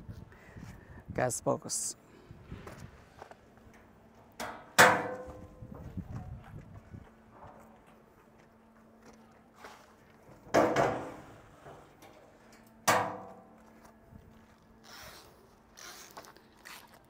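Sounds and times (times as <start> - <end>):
metal door banging against frame: 4.8 - 5.5, 10.5 - 11.3.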